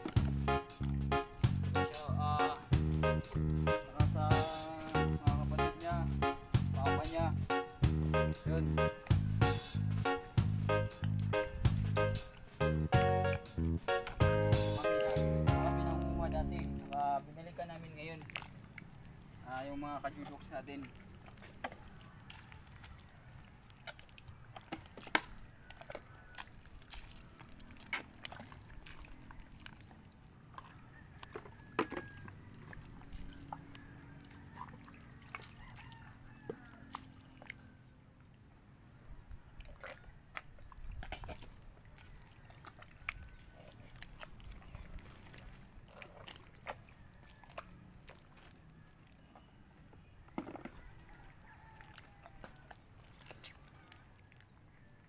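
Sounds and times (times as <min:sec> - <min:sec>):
clicks and knocks in mud: 0:23.8 - 0:33.7
rooster crowing faintly: 0:25.3 - 0:26.8, 0:30.6 - 0:37.8, 0:50.4 - 0:54.8.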